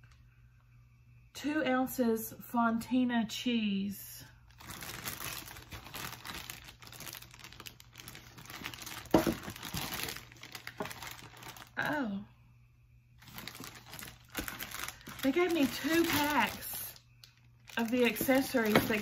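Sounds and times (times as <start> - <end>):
plastic packets crinkling: 4.5 - 11.9, 13.2 - 19.0.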